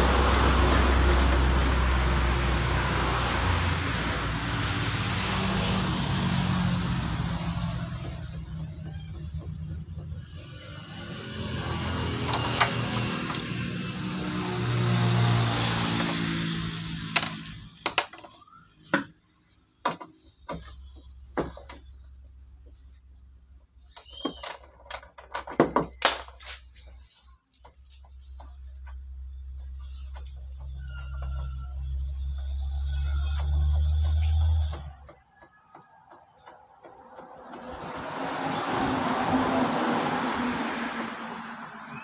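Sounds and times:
vehicle passing: 0:00.0 - 0:17.8, 0:36.9 - 0:42.0.

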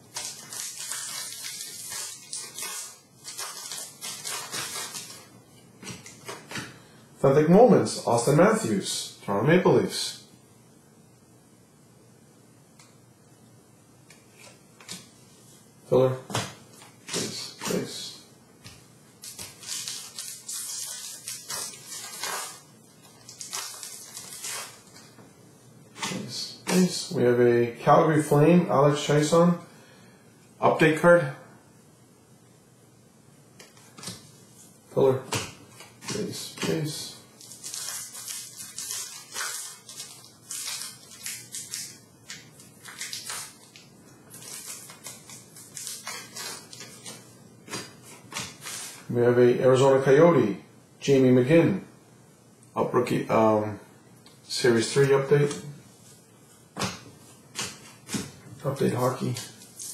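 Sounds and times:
wrapper crinkling and tearing: 0:00.0 - 0:06.6, 0:19.2 - 0:25.2, 0:35.8 - 0:49.1, 0:59.0 - 0:59.9
trading cards swishing: 0:00.1 - 0:06.8, 0:16.3 - 0:25.1, 0:35.2 - 0:49.1.

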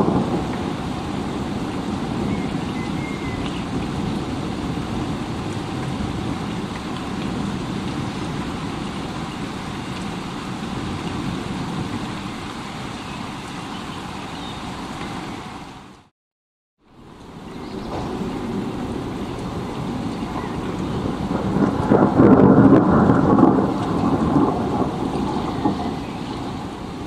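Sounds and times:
steady rain: 0:00.0 - 0:16.1, 0:16.8 - 0:27.0.

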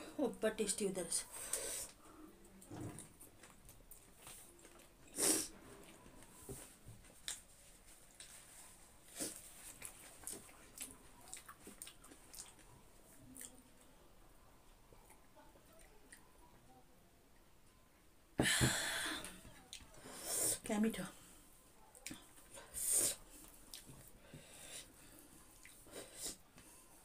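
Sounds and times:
chewing: 0:01.9 - 0:05.2, 0:07.2 - 0:14.0, 0:23.3 - 0:24.2, 0:25.0 - 0:26.4.

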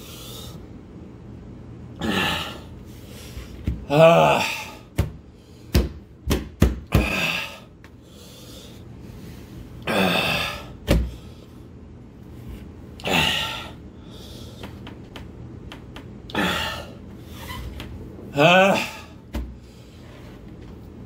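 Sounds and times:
man groaning in pain: 0:02.0 - 0:02.7, 0:03.8 - 0:04.9, 0:06.9 - 0:07.7, 0:09.8 - 0:10.8, 0:13.0 - 0:13.8, 0:18.3 - 0:19.2.

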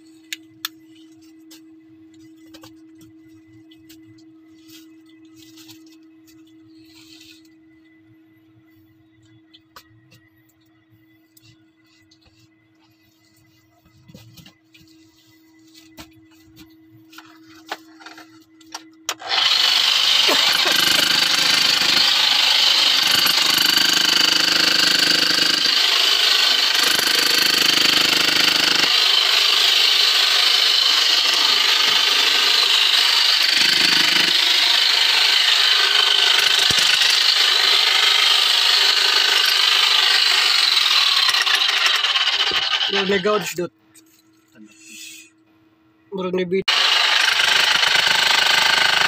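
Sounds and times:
power tool running: 0:19.1 - 0:43.5, 0:46.7 - 0:49.0.

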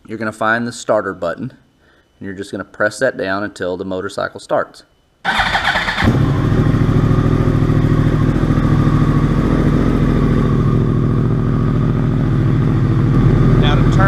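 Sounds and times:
motorcycle engine starting and idling: 0:05.3 - 0:14.0.

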